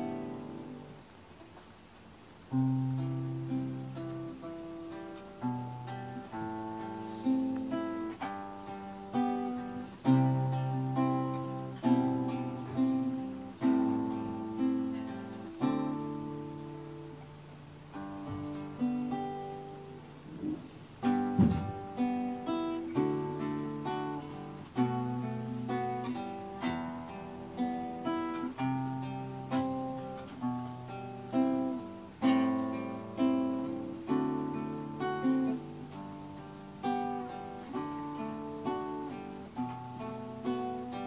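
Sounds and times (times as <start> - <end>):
plucked string music: 0.0 - 41.0.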